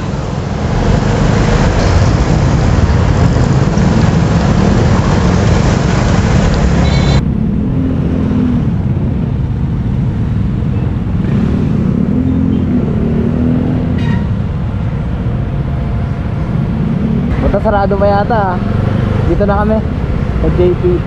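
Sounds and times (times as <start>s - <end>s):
wind rush over microphone: 0.0s - 12.1s.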